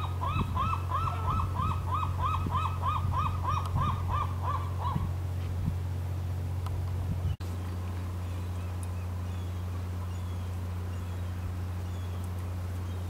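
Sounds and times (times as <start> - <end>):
sea lion barking: 0.0 - 5.1
steady low hum: 0.0 - 13.0.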